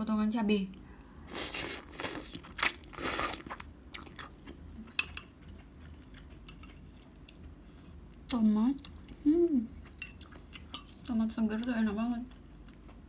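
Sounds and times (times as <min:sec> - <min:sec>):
quiet chewing: 0:00.7 - 0:13.0
noodle slurping: 0:01.3 - 0:03.6.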